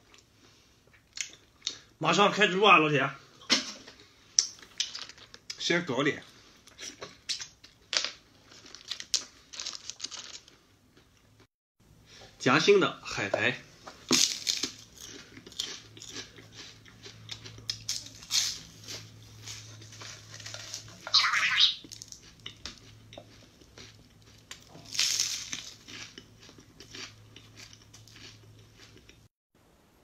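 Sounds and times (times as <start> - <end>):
seaweed sheets crunching when chewed: 6.7 - 10.6, 14.1 - 21.2, 21.8 - 29.2.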